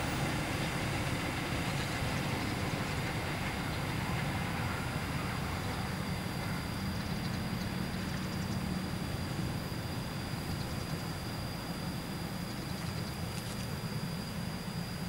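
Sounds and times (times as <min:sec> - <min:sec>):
distant train rumble: 0:00.0 - 0:15.0
engine hum: 0:00.0 - 0:15.0.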